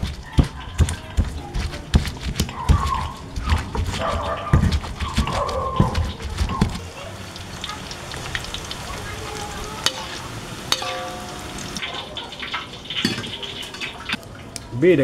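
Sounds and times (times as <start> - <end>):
pestle knocking in stone mortar: 0.0 - 6.8
oil popping: 0.0 - 14.7
food sizzling in hot oil: 4.4 - 14.5.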